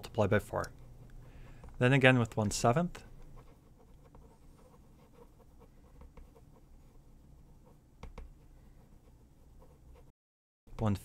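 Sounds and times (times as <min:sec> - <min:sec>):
pen ticking and tapping: 0:08.0 - 0:08.3.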